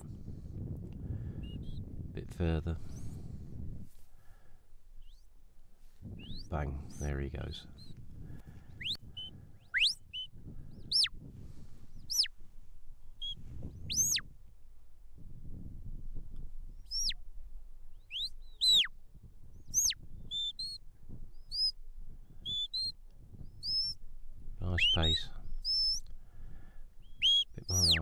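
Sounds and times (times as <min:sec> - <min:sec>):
short whistle pips: 0:08.8 - 0:10.3, 0:12.0 - 0:12.3, 0:13.2 - 0:14.2, 0:16.9 - 0:17.2, 0:18.1 - 0:18.9, 0:19.7 - 0:20.8, 0:21.5 - 0:21.8, 0:22.4 - 0:23.0, 0:23.6 - 0:24.0, 0:24.8 - 0:26.0, 0:27.0 - 0:28.0.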